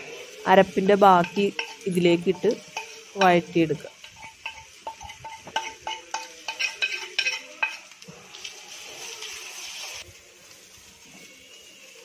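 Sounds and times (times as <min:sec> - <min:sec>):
utensil scraping a frying pan: 0:00.0 - 0:08.0
frying sizzle: 0:00.0 - 0:12.0.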